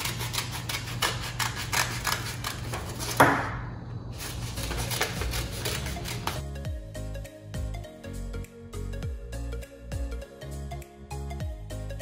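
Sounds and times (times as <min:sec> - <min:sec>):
scissors snipping paper: 0:00.0 - 0:03.2, 0:04.2 - 0:06.4
paper rustling: 0:04.2 - 0:06.4
background music: 0:04.2 - 0:12.0.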